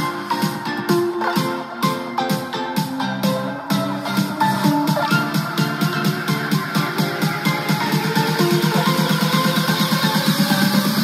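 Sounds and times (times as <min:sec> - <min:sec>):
electronic dance music: 0:00.0 - 0:11.0.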